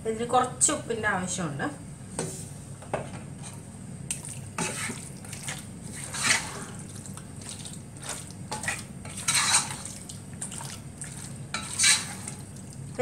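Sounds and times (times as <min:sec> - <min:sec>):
wooden spatula stirring thick gravy: 0:04.2 - 0:12.6.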